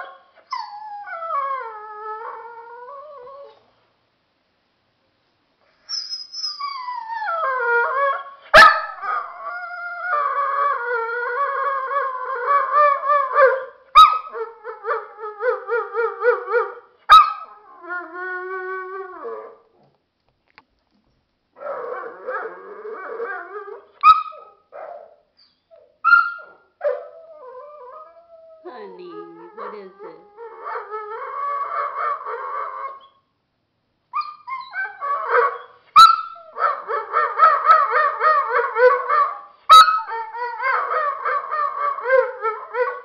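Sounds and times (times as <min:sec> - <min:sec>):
dog howling: 0:34.4 - 0:43.0.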